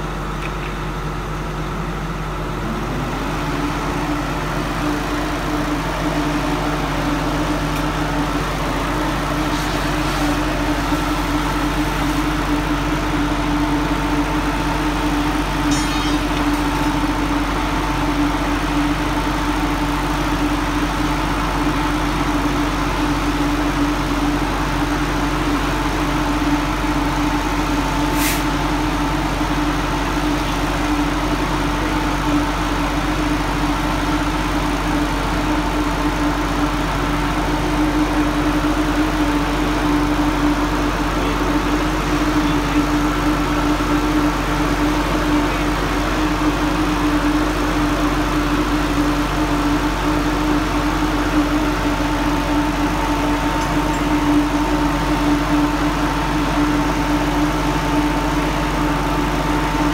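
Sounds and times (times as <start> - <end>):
engine humming steadily: 0.0 - 59.9
sharp click: 15.7 - 16.6.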